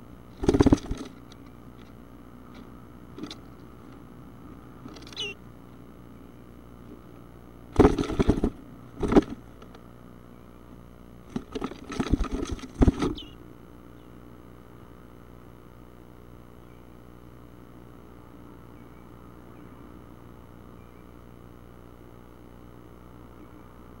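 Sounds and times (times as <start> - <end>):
bird scrabbling in wooden box: 0.4 - 1.3, 7.8 - 9.4, 11.3 - 13.4.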